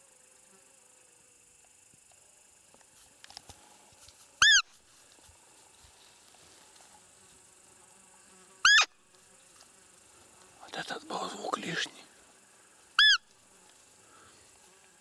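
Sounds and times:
insects chirring: 0:00.0 - 0:15.0
high-pitched deer call squeaks: 0:04.4 - 0:04.7, 0:08.6 - 0:09.0, 0:13.0 - 0:13.3.

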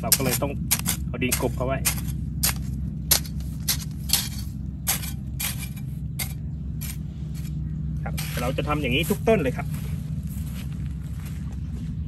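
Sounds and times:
hoe chopping into dry soil: 0:00.0 - 0:07.0.

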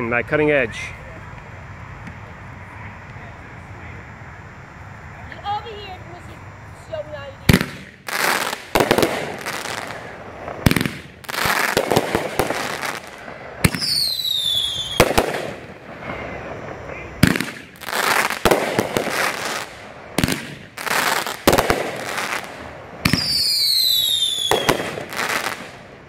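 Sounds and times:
firework crackling: 0:00.6 - 0:26.0
firework launches and bursts: 0:07.4 - 0:16.6, 0:17.2 - 0:26.0
falling whistle tone: 0:13.8 - 0:15.0.

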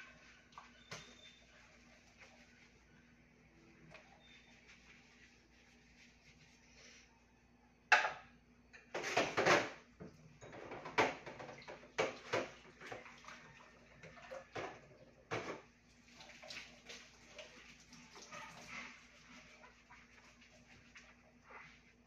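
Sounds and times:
dishes clattering: 0:07.9 - 0:09.8
tap water running: 0:09.2 - 0:21.1.

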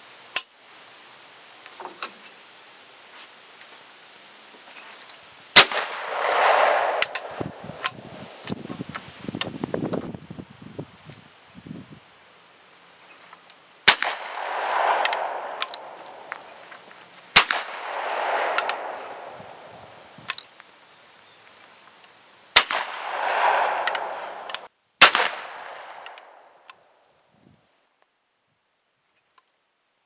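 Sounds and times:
shotgun shots with echo: 0:05.6 - 0:08.1, 0:13.9 - 0:16.6, 0:17.4 - 0:19.8, 0:22.6 - 0:26.1
light gun clicks: 0:06.2 - 0:08.0, 0:14.0 - 0:16.6, 0:17.4 - 0:19.4, 0:22.7 - 0:26.8.

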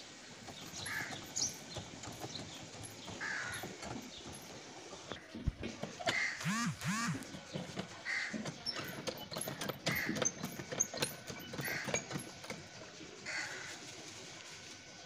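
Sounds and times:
sharp clicks and knocks: 0:00.4 - 0:12.7
crows cawing: 0:00.8 - 0:01.2, 0:03.2 - 0:03.6, 0:08.0 - 0:08.4, 0:11.6 - 0:12.1, 0:13.2 - 0:13.8.

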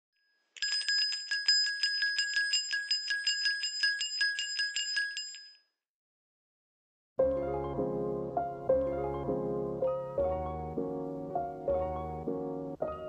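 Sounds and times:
small metal bell rung rapidly: 0:00.6 - 0:05.6.

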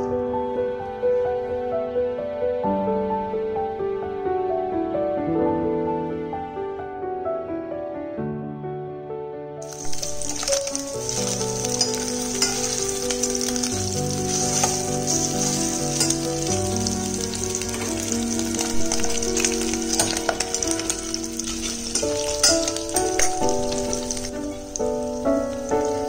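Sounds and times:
background music: 0:00.0 - 0:26.0
pork sizzling in fat: 0:09.6 - 0:26.0
metal ladle scraping pot: 0:09.7 - 0:13.6, 0:14.2 - 0:16.6, 0:17.7 - 0:24.8.

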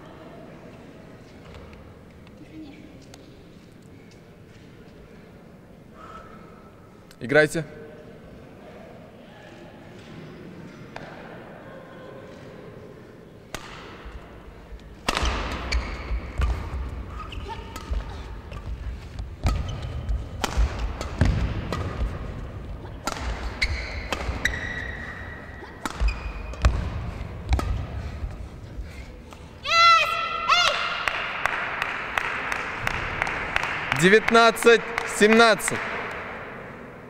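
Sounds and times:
racket hitting shuttlecock: 0:13.5 - 0:14.2, 0:14.9 - 0:28.4
shoes squeaking on court: 0:15.1 - 0:22.0, 0:22.8 - 0:26.8.

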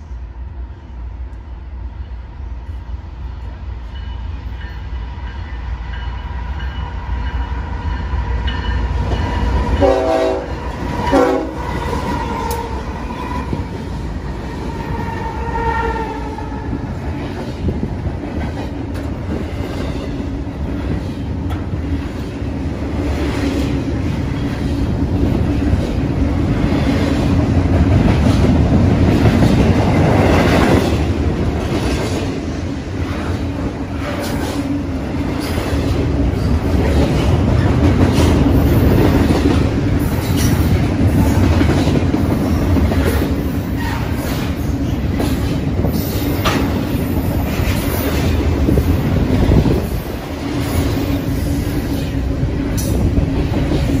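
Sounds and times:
freight cars rumbling over rails: 0:05.9 - 0:54.0
train air horn: 0:09.8 - 0:12.7.

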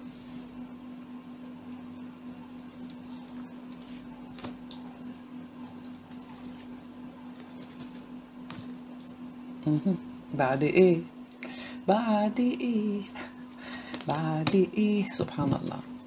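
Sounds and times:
cards rustling in hand: 0:05.7 - 0:08.8.

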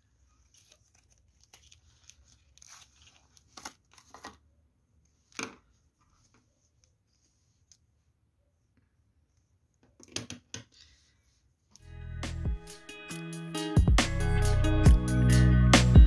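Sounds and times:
plastic pen pack crinkling: 0:00.4 - 0:04.4.

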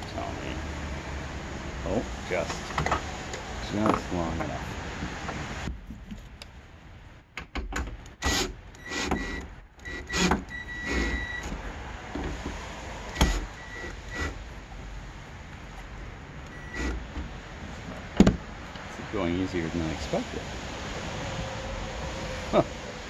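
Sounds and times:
cordless drill whining: 0:08.3 - 0:11.5, 0:13.1 - 0:14.4, 0:16.5 - 0:17.0.

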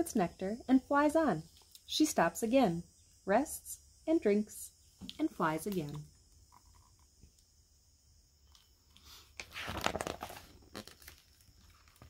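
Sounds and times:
paper page rustling: 0:09.4 - 0:12.0.

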